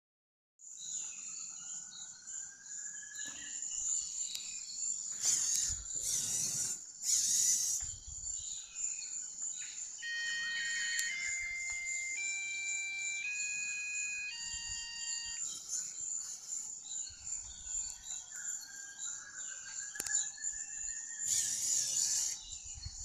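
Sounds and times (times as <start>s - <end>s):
servo motors whining: 5.1s - 8.1s, 10.0s - 16.4s, 21.2s - 22.6s
electronic beeping tones: 10.0s - 15.6s.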